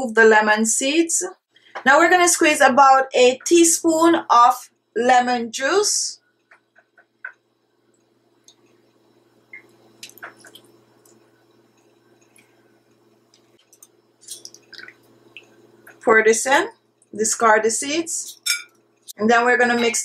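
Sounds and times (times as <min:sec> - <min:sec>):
faint steady hum: 0:00.0 - 0:20.0
juice dripping: 0:06.4 - 0:16.1.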